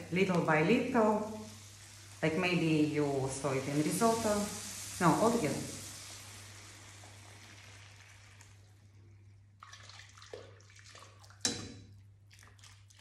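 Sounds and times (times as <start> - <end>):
liquid pouring and splashing: 0.0 - 13.0.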